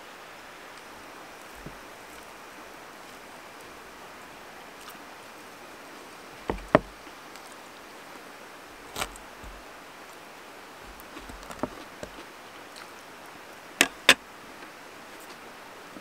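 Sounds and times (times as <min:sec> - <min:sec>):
faint steady hiss: 0:00.0 - 0:16.0.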